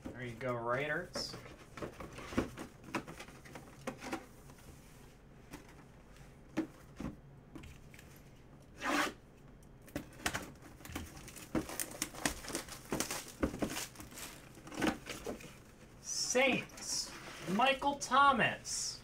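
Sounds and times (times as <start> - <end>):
plastic wrap tearing and crinkling: 10.9 - 15.3.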